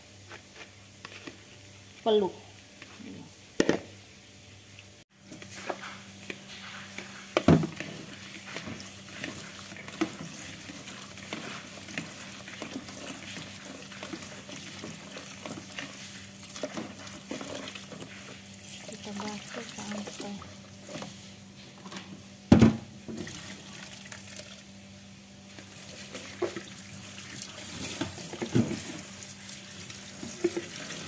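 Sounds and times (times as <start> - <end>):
tap water running into bowl: 25.6 - 31.0.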